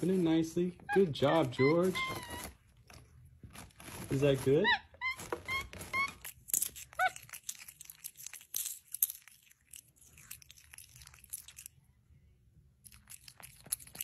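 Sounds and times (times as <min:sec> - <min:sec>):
monkey chewing wetly: 0:05.5 - 0:11.8, 0:12.8 - 0:14.0.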